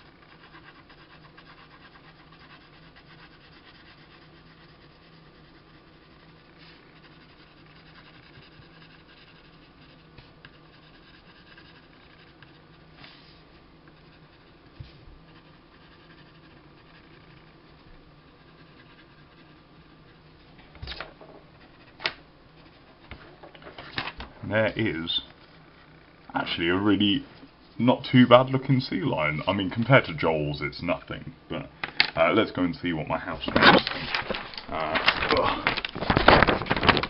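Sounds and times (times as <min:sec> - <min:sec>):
pencil scratching on paper: 0:00.0 - 0:20.5, 0:21.5 - 0:22.0.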